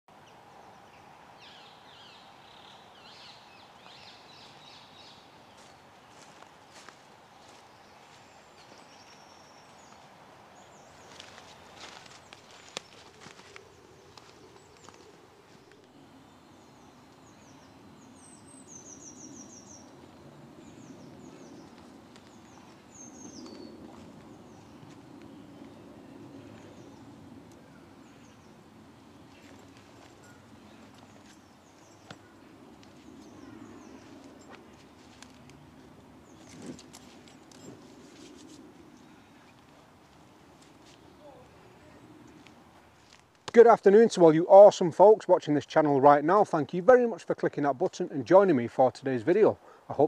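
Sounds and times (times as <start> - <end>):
low background hiss: 0.1 - 50.0
songbird chirping: 0.1 - 50.0
footsteps in dry leaves: 5.5 - 10.2, 10.8 - 15.7, 29.2 - 38.7.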